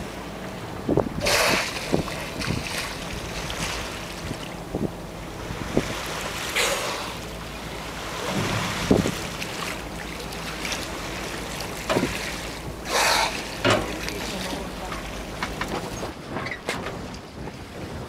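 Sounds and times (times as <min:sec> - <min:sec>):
water splashes: 0:00.0 - 0:16.4
water washing around a boat: 0:00.0 - 0:18.0
wind on microphone: 0:00.8 - 0:06.4, 0:08.1 - 0:09.9, 0:15.6 - 0:18.0.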